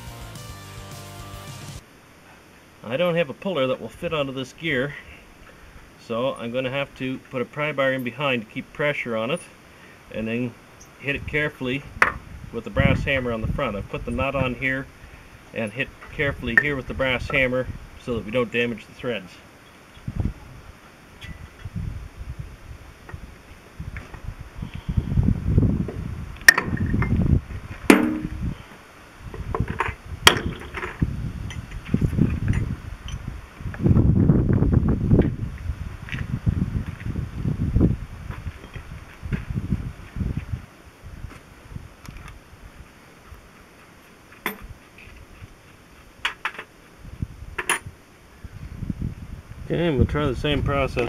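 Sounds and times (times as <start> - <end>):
hammer striking metal nut: 27.9 - 28.4.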